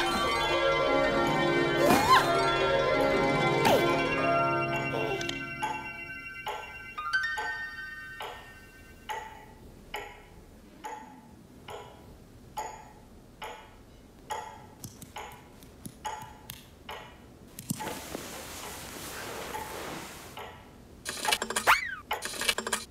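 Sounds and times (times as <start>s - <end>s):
clock chime ringing: 2.4s - 9.1s
clock ticking: 9.0s - 17.3s
soft hiss: 17.5s - 20.4s.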